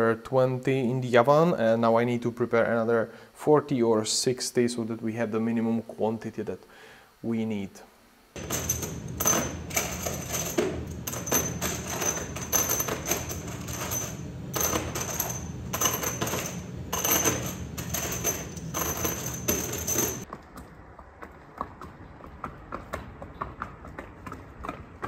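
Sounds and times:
low machine hum: 0:08.4 - 0:20.2
metal parts clattering: 0:08.4 - 0:20.3
hoof clops on cobblestones: 0:20.2 - 0:25.0.

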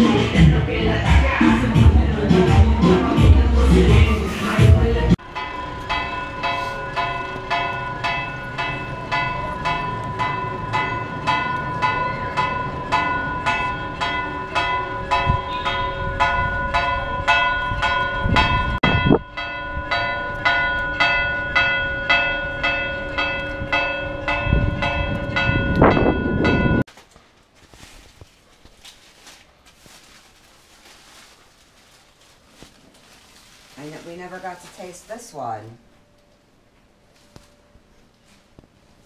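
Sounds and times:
church bells ringing a fast peal: 0:05.2 - 0:26.8.

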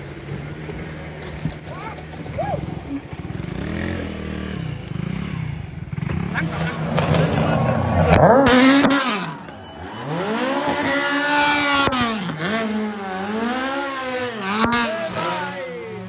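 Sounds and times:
car engine revving hard: 0:03.3 - 0:15.6.

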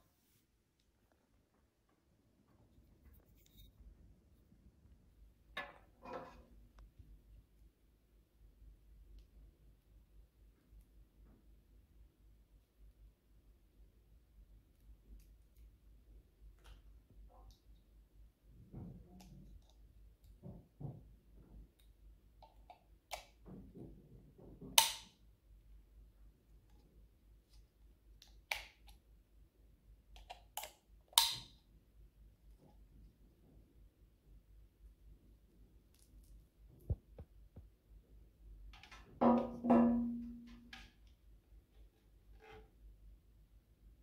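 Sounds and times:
small plastic clicks and handling: 0:30.1 - 0:31.6.

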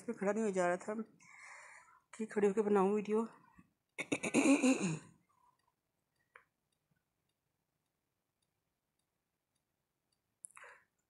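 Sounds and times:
woman's voice: 0:00.0 - 0:01.1, 0:02.2 - 0:03.3.

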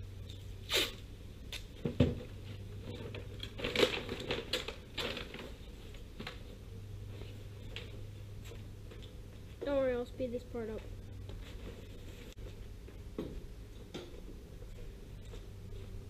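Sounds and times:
tape ripping off roll: 0:00.6 - 0:01.7
paper crinkling and rustling: 0:02.9 - 0:06.5.

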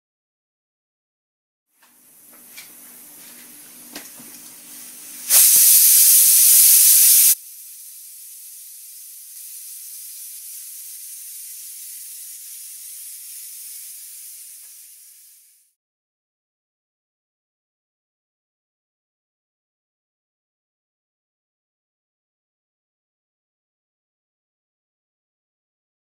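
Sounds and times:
steady high hiss: 0:02.0 - 0:15.8
loud hissing burst: 0:05.1 - 0:15.7.

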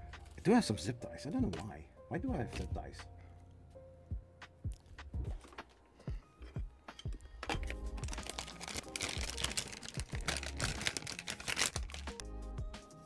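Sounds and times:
plastic bag crinkling: 0:07.5 - 0:12.2.

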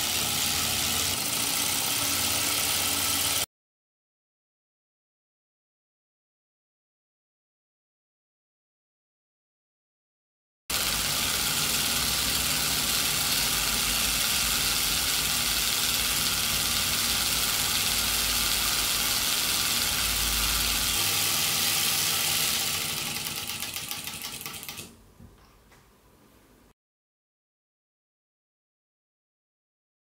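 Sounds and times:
miniature engine buzzing: 0:00.0 - 0:03.5, 0:10.7 - 0:24.9.

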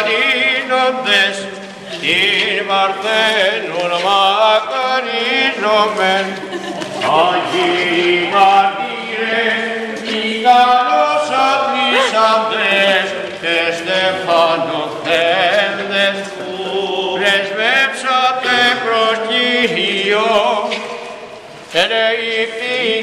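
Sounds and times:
man chanting: 0:07.1 - 0:15.9.

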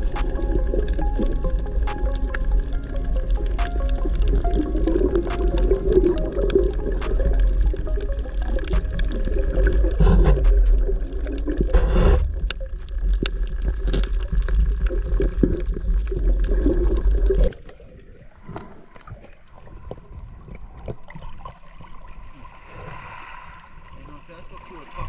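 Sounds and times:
scattered clicks: 0:00.0 - 0:14.9
underwater rush of moving water: 0:00.0 - 0:25.0.

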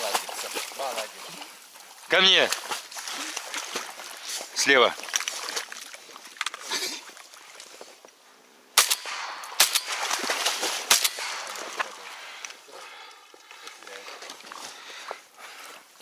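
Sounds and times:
shotgun shots with echo: 0:08.8 - 0:11.9.

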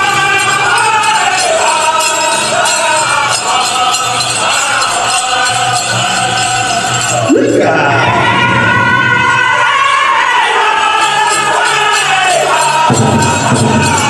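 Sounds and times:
bells jingling: 0:00.0 - 0:08.0, 0:10.4 - 0:14.0
group chorus singing: 0:00.0 - 0:14.0
steady drumbeat: 0:11.0 - 0:14.0.

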